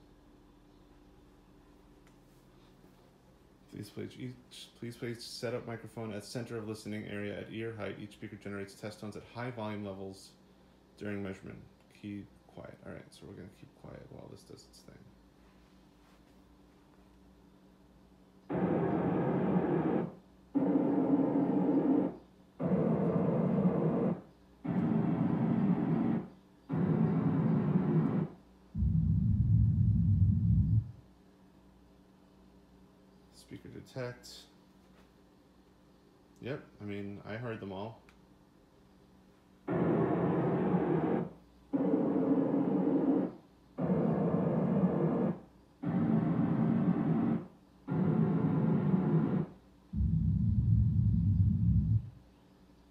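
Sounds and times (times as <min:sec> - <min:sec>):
hissy test noise from speakers: 0:00.0 - 0:52.9
noise test signal pulses: 0:18.4 - 0:31.0, 0:39.6 - 0:52.2.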